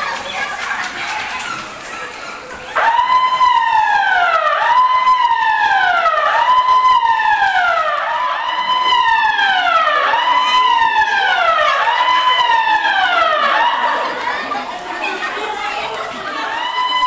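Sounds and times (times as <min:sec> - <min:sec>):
electronic alarm siren: 0:02.8 - 0:14.2, 0:16.5 - 0:17.0.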